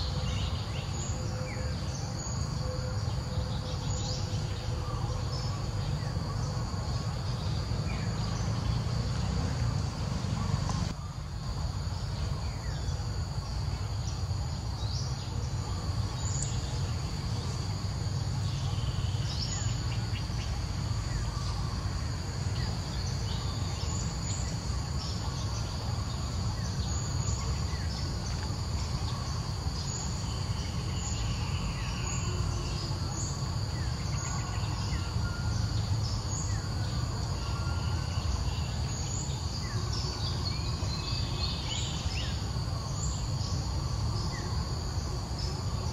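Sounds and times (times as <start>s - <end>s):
insects droning: 0.0s - 45.9s.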